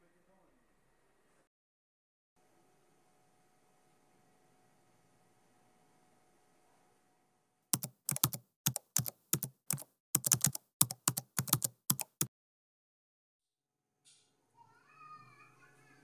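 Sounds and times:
keyboard key clicks: 7.8 - 12.3.

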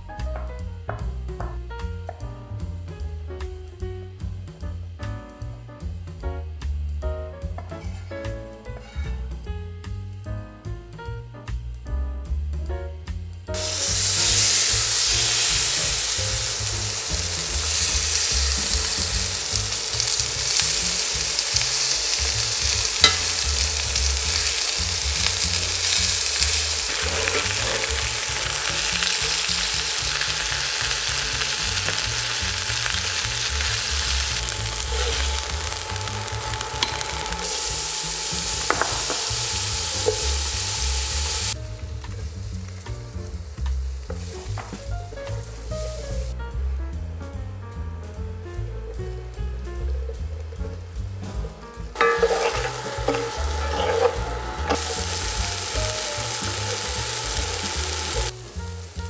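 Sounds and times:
chicken sizzling in a skillet: 13.5 - 46.4, 50.0 - 59.0.

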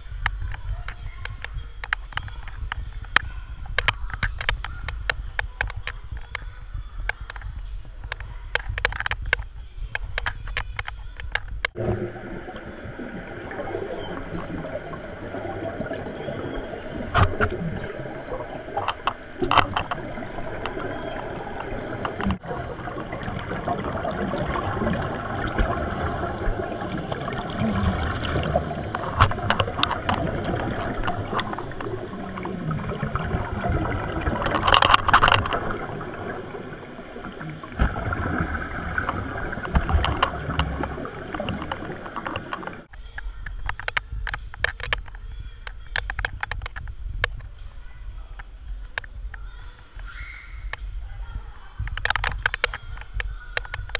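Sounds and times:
underwater regulator bubbling: 0.0 - 42.9
exhaled bubble bursts: 11.8 - 42.9.

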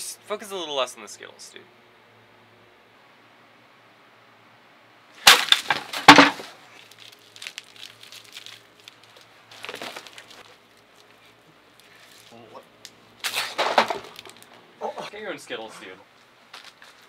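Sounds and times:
wooden table crashing over: 5.2 - 6.6, 13.3 - 14.4.

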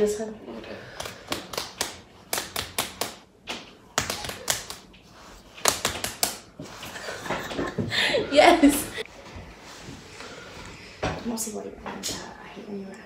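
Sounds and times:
fists pounding on palms: 1.0 - 4.8, 5.6 - 6.5.

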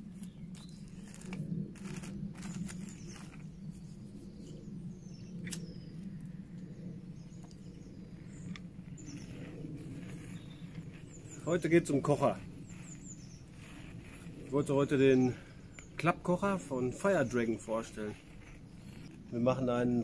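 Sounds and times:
steady low rumble: 0.0 - 20.0
bird chirps: 0.1 - 19.2
cloth pouch rustling: 0.2 - 4.0
small objects clicking and rustling: 0.6 - 3.4.

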